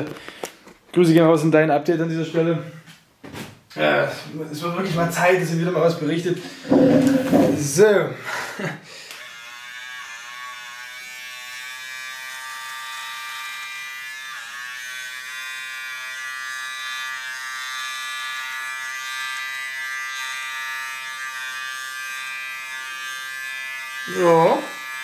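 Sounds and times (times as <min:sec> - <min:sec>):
electric shaver buzzing: 0:05.9 - 0:25.0.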